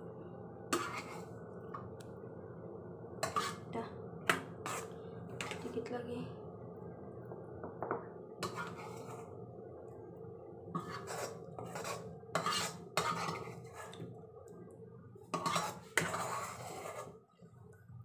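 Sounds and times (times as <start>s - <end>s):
low hum: 0.0s - 12.4s
spoon scraping a pan: 0.7s - 1.4s, 3.2s - 3.7s, 4.3s - 5.8s, 8.4s - 9.3s, 10.7s - 14.0s, 15.3s - 17.2s.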